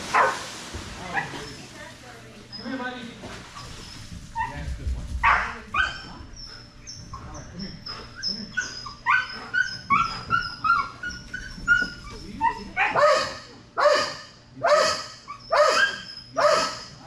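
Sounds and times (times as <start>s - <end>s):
dog barking loudly: 0.1s - 0.4s, 12.7s - 17.0s
dog whining: 5.7s - 17.0s.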